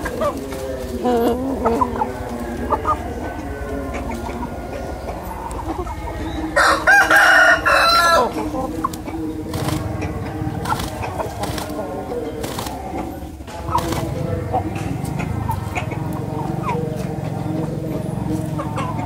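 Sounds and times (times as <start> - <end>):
rooster crowing: 2.6 - 8.5.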